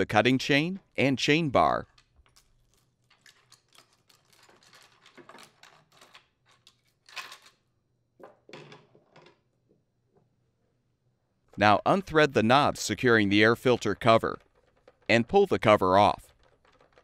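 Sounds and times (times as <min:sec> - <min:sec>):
chain links clinking and rattling: 0:01.8 - 0:07.6.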